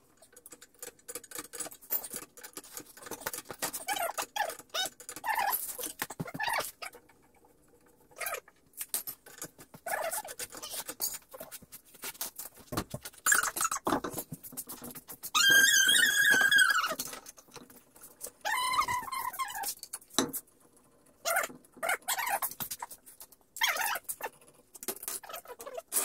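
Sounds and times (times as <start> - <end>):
hand tools clicking and clattering: 0.2 - 6.5.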